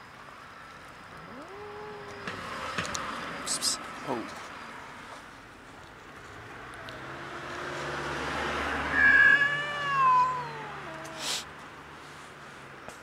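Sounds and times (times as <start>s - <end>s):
cat meowing: 1.2s - 2.5s, 8.8s - 11.4s.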